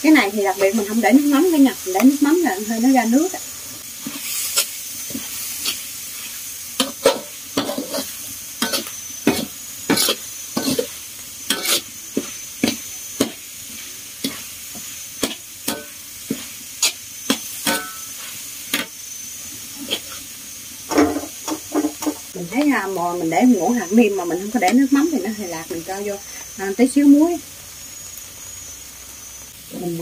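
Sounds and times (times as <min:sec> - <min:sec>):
steady sizzle: 0:00.0 - 0:30.0
metal spatula scraping a wok: 0:03.9 - 0:22.4.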